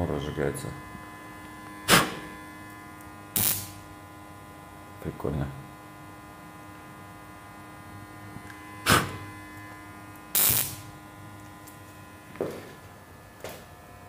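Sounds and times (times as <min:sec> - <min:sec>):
electrical hum: 0:00.0 - 0:14.0
gas burner igniting: 0:00.2 - 0:04.1, 0:07.7 - 0:13.7.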